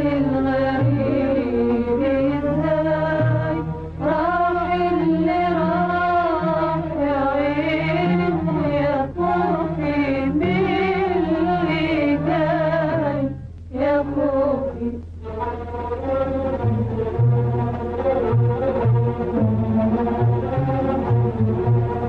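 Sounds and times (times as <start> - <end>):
woman singing: 0.0 - 15.0
instrumental accompaniment: 0.0 - 22.0.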